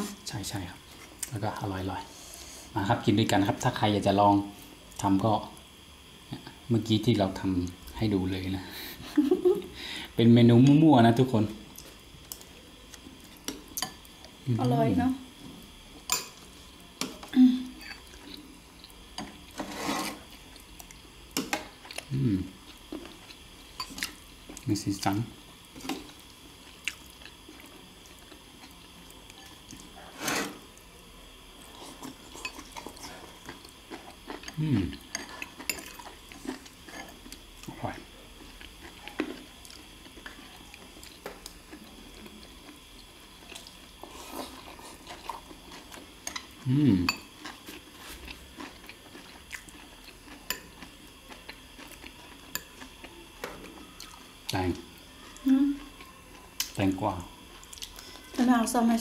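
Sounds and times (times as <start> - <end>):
soft chewing: 17.0 - 30.8, 31.5 - 58.4.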